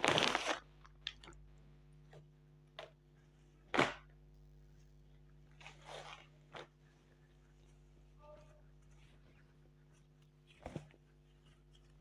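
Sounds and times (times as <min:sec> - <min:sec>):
plastic wrapping crinkling: 0:00.0 - 0:01.2
faint steady hum: 0:00.0 - 0:12.0.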